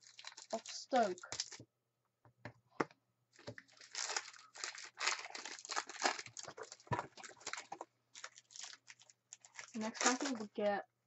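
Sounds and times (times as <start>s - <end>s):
foil wrapper crinkling: 0.0s - 1.6s, 3.4s - 10.6s.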